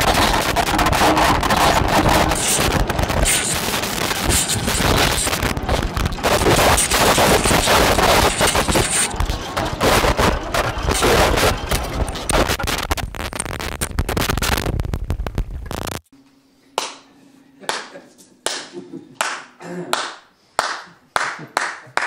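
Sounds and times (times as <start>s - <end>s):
distorted glitch crackles and pops: 0.0s - 16.1s.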